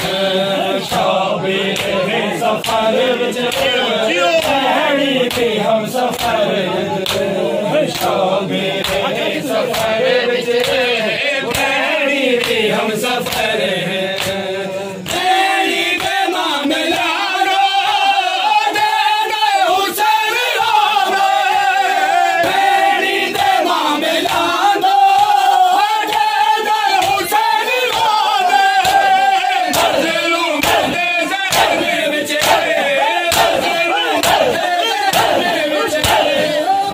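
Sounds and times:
men chanting in unison: 0.0 - 36.9
hands slapping chests: 1.7 - 2.0, 2.6 - 6.4, 7.0 - 8.2, 8.8 - 10.9, 11.5 - 15.3, 28.8 - 36.9.

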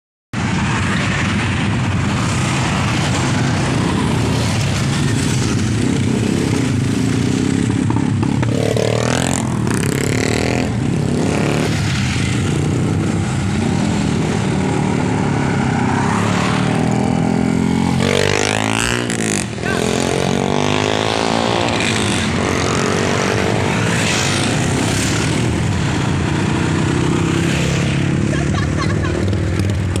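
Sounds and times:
wind and road noise: 0.4 - 30.0
motorcycle engine running: 28.3 - 30.0.

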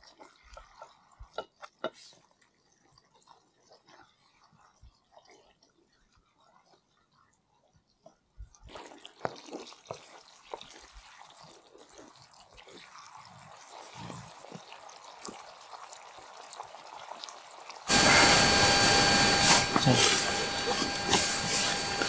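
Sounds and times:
curry simmering in skillet: 0.0 - 22.0
wooden spatula scraping skillet: 17.9 - 22.0.

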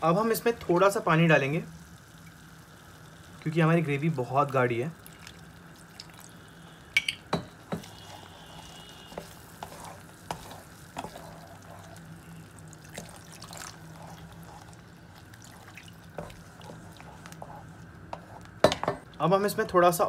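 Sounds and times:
steady low hum: 4.9 - 20.0
spatula stirring thick sauce: 7.7 - 20.0
water pouring into pan: 12.5 - 17.1.

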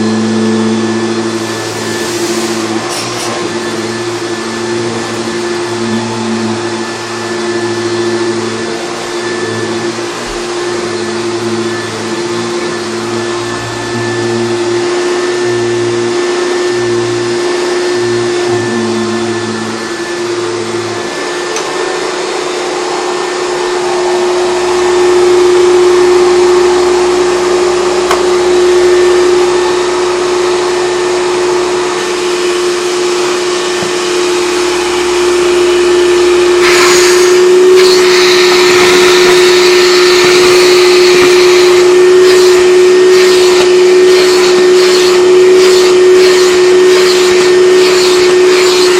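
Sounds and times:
upright vacuum cleaner running: 0.0 - 48.9.

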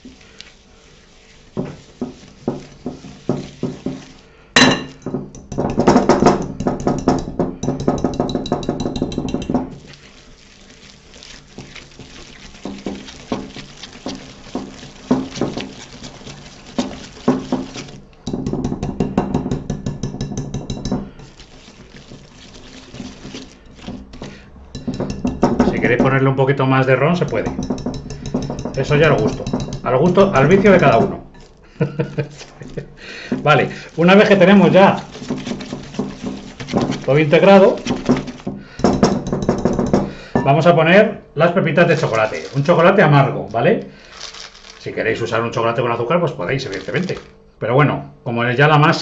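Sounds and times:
wire whisk scraping glass bowl: 0.0 - 18.8, 19.7 - 26.0, 27.0 - 31.6, 32.2 - 40.0, 41.8 - 43.0.

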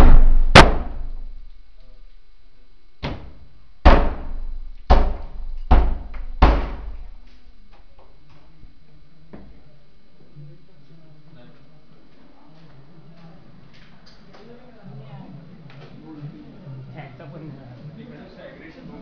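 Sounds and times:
heavy blows against a door: 0.0 - 1.4, 3.0 - 7.2.

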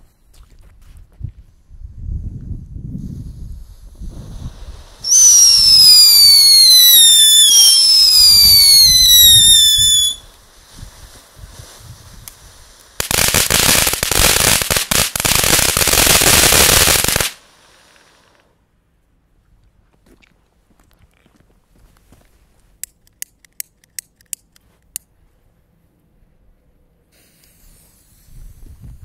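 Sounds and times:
firework hissing: 3.0 - 18.4, 27.1 - 28.8
firework crackling: 3.1 - 18.5
firework whistle sliding down: 5.0 - 10.3.

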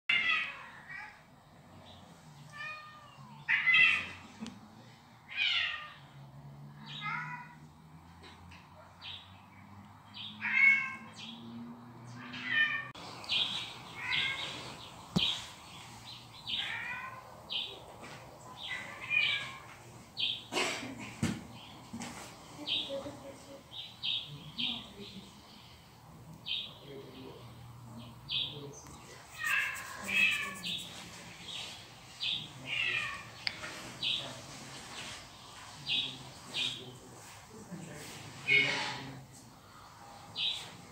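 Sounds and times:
cat meowing: 2.5 - 4.2, 5.3 - 6.0, 6.8 - 7.6, 10.4 - 11.2, 12.2 - 12.9, 14.0 - 14.6, 16.5 - 17.4, 18.7 - 19.7, 29.3 - 30.9.

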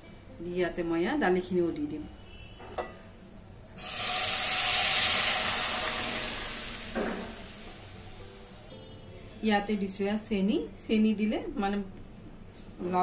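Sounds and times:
food sizzling in hot oil: 3.8 - 8.7.

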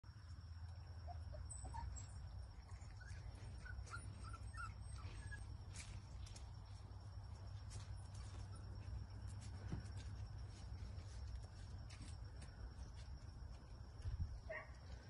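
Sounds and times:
puppies squeaking and whimpering: 1.0 - 5.9.

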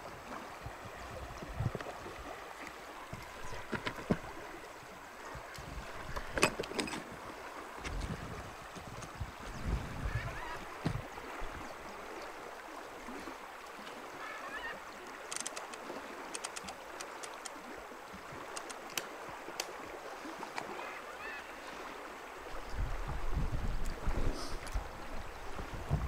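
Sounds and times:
river water rushing: 0.0 - 26.0
fishing reel clicks: 15.2 - 15.8, 16.4 - 17.6.

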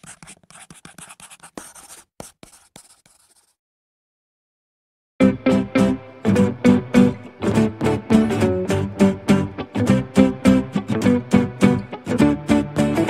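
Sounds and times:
pencil scratching on paper: 0.0 - 3.6
strummed guitar music: 5.2 - 13.0.

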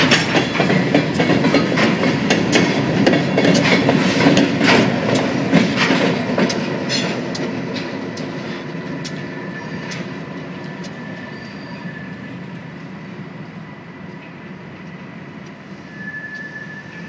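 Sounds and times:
train rumble: 0.0 - 17.0
wheel squeal: 10.9 - 12.4, 15.7 - 17.0.

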